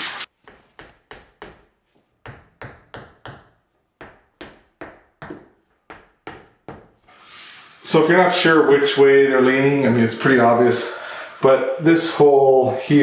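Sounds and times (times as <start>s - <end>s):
rubber mallet tapping on wood: 0.4s - 7.0s.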